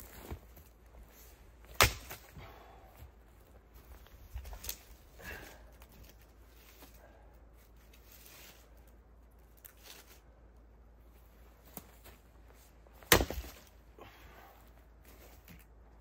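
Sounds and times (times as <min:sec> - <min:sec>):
firewood knocks and rustling: 0:13.0 - 0:13.7.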